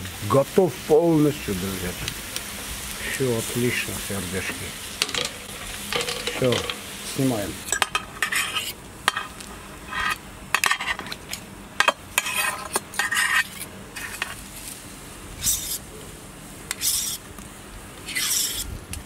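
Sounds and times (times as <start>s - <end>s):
knife scraping metal skewers: 7.7s - 11.2s, 11.8s - 14.4s, 15.4s - 15.8s, 16.7s - 17.2s, 18.0s - 18.8s.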